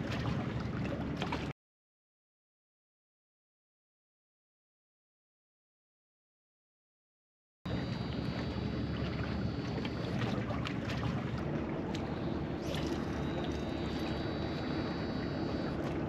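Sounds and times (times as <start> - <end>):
fishing reel brake whine: 7.7 - 10.2, 12.0 - 15.8.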